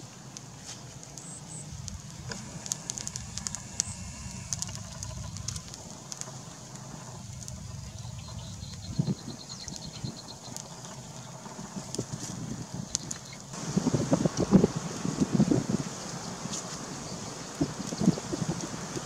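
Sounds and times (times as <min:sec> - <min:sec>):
low steady rumble: 0:00.2 - 0:19.0
seafood crackling on hot stone: 0:00.2 - 0:19.0
faint high ticks: 0:00.3 - 0:11.0.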